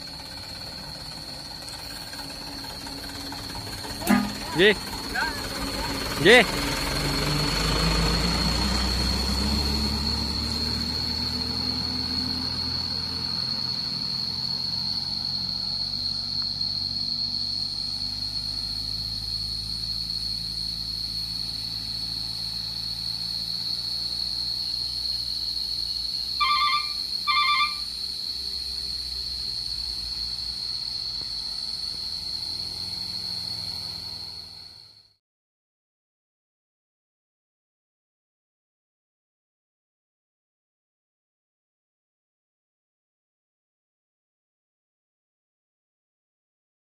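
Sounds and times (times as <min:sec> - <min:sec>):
diesel truck engine rumble: 0:00.0 - 0:35.1
short high beeps: 0:04.0 - 0:04.8, 0:26.4 - 0:27.9
steady high whine: 0:26.3 - 0:28.0.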